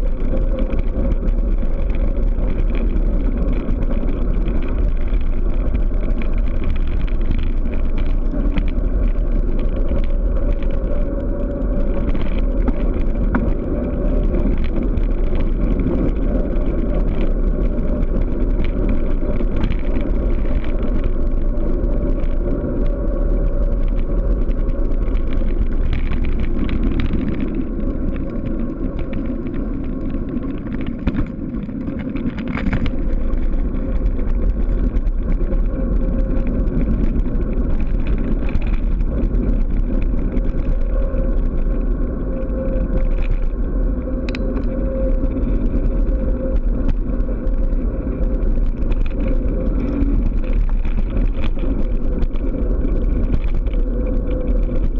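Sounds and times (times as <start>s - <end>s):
tyre noise on road: 0.0s - 54.9s
wind rumbling over microphone: 0.0s - 54.9s.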